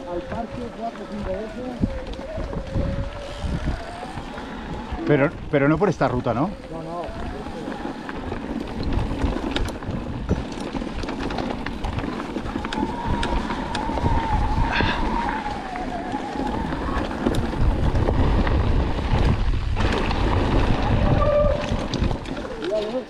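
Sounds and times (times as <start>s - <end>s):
wavering whine: 0.0s - 8.7s
bike tyres crunching on dirt: 0.0s - 23.0s
wind rumbling on microphone: 0.0s - 23.0s.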